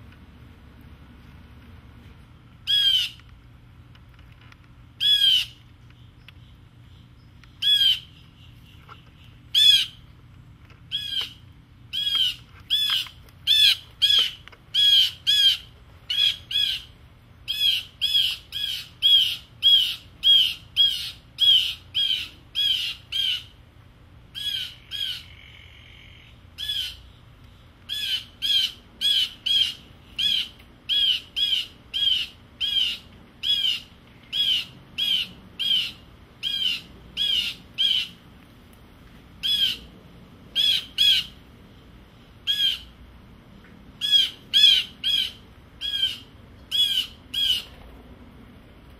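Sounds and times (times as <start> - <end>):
blue jay harsh jeer calls: 2.6 - 3.2, 5.0 - 5.6, 7.6 - 8.5, 9.5 - 10.0, 10.9 - 23.6, 24.3 - 27.1, 27.9 - 38.2, 39.4 - 39.9, 40.5 - 41.4, 42.4 - 43.0, 44.0 - 47.8
soft buzzy bird call: 24.4 - 27.2.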